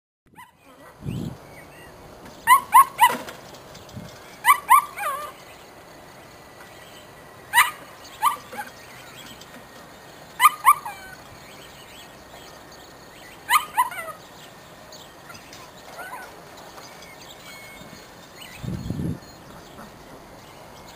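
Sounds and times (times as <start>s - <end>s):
puppy yapping: 0.3s - 0.9s, 2.4s - 3.3s, 4.4s - 5.4s, 7.5s - 8.8s, 10.4s - 11.2s, 13.5s - 14.2s, 15.3s - 16.4s.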